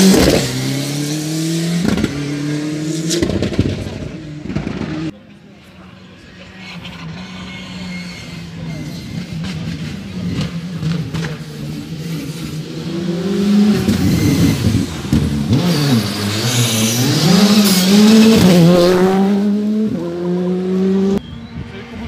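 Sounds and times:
rally car engine passing: 0:00.0 - 0:21.2.

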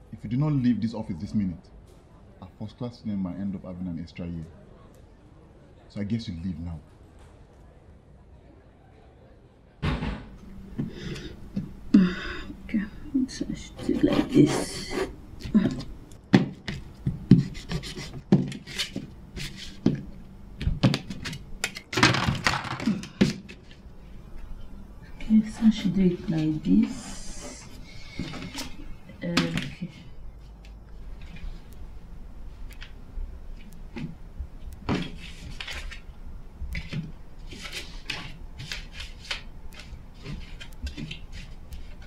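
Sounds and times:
pencil scratching on paper: 0:13.6 - 0:15.2, 0:17.3 - 0:19.8
papers rustling on desk: 0:16.5 - 0:23.9, 0:34.8 - 0:36.1, 0:36.8 - 0:42.0.

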